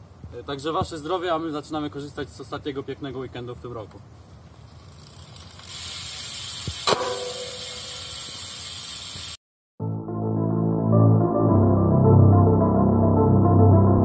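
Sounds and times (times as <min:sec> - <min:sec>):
music: 0:09.8 - 0:14.0.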